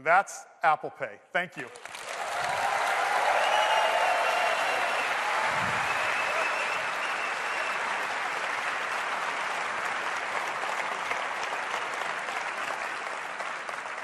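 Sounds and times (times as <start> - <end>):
audience applauding: 1.7 - 14.0.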